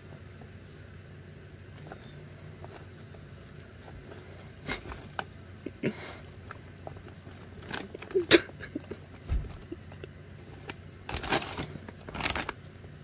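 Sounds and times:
dog rustling in a bag: 0:06.9 - 0:08.3, 0:10.4 - 0:12.6.

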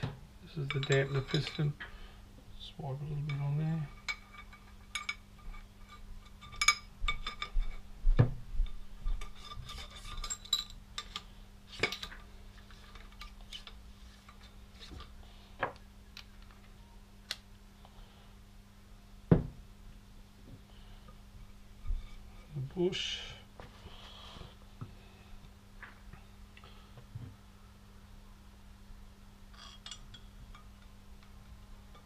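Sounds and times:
metal parts clinking and rubbing: 0:00.6 - 0:01.8, 0:03.3 - 0:07.8, 0:09.2 - 0:15.0, 0:29.5 - 0:30.2.

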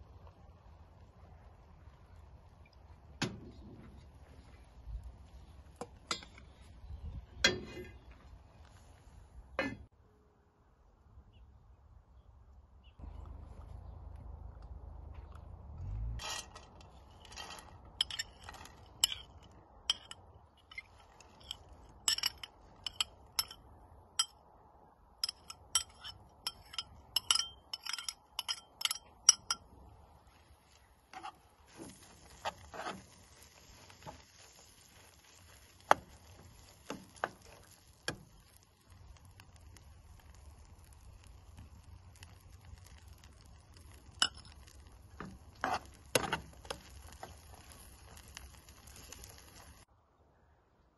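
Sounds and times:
berries sizzling in oil: 0:15.8 - 0:23.6, 0:25.2 - 0:49.9
metal spoon scraping glass bowl: 0:16.2 - 0:19.3, 0:25.2 - 0:29.6.

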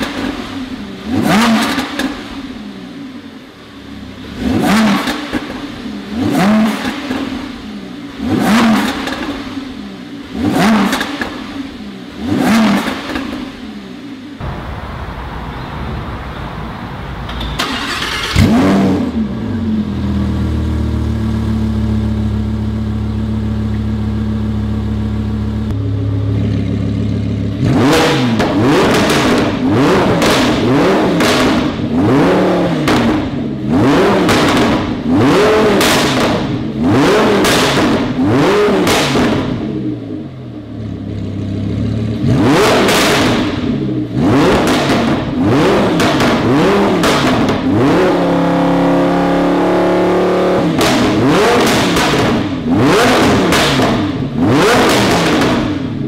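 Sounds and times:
sports car engine idling and revving: 0:00.0 - 0:14.5, 0:17.3 - 0:56.0.

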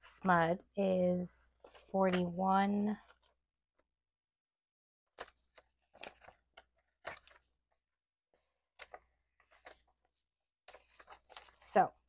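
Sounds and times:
banknotes rustling: 0:05.1 - 0:12.0.

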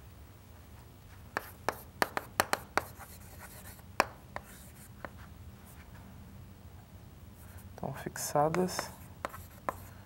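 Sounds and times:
chalk tapping on chalkboard: 0:01.3 - 0:05.2, 0:08.5 - 0:09.9
chalk scraping: 0:01.4 - 0:03.8, 0:08.6 - 0:10.0.

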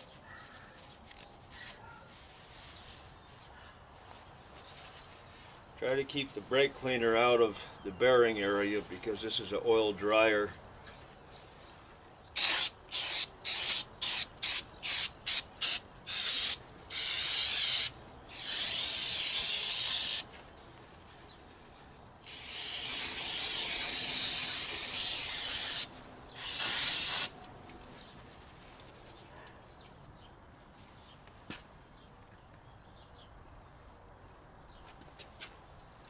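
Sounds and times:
aerosol spraying: 0:12.4 - 0:20.3, 0:22.3 - 0:27.4.

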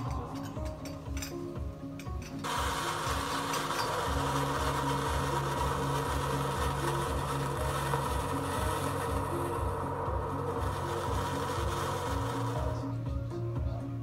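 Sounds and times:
background music with beat: 0:00.0 - 0:14.0
sparkler fizzing hiss: 0:02.4 - 0:13.0.

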